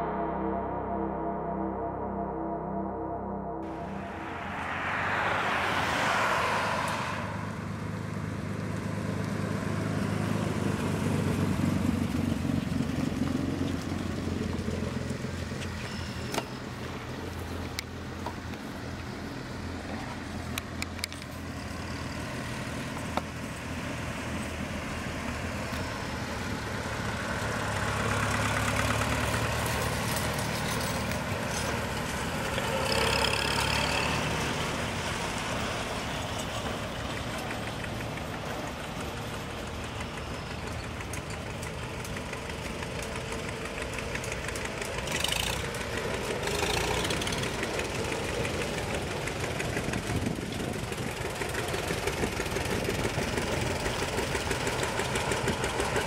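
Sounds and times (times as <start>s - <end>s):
tractor engines passing: 3.6s - 56.0s.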